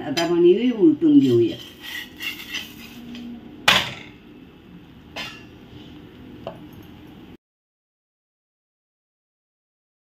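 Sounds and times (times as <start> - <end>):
metal spatula clanking on griddle: 5.2 - 5.5.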